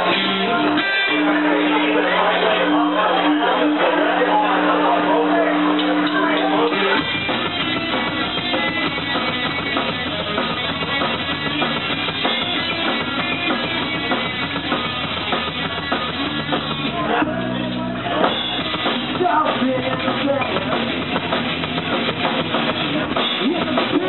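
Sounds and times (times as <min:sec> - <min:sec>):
bass guitar: 0:00.0 - 0:24.0
drums: 0:00.0 - 0:24.0
electric guitar: 0:00.0 - 0:24.0.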